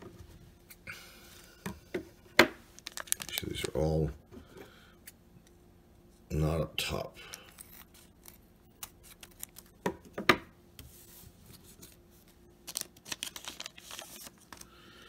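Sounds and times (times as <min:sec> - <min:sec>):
foil wrapper crinkling and tearing: 0:02.7 - 0:03.8, 0:12.6 - 0:14.8.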